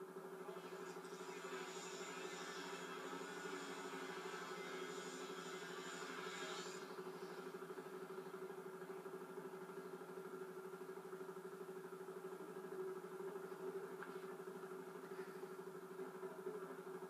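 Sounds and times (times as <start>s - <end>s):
motor humming: 0.3s - 10.7s.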